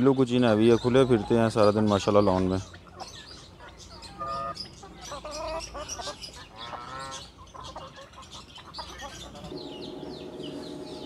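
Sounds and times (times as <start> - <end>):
chickens clucking: 0.0 - 11.0.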